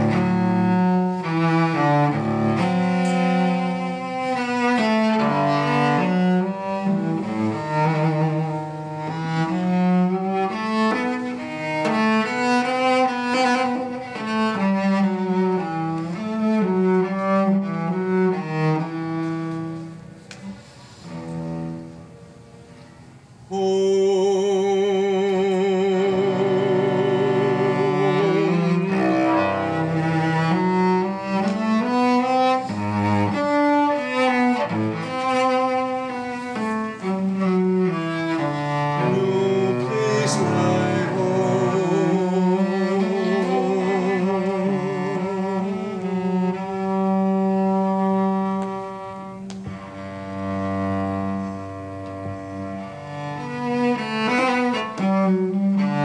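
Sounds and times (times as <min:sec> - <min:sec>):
bowed cello: 0:00.0 - 0:56.0.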